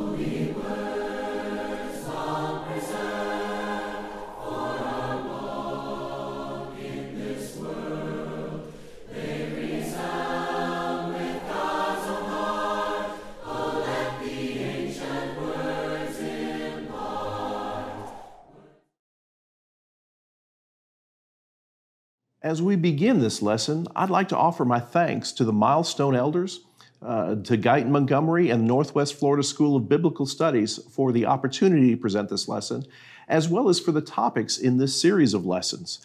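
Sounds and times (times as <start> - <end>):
choir singing a hymn: 0.0 - 18.8.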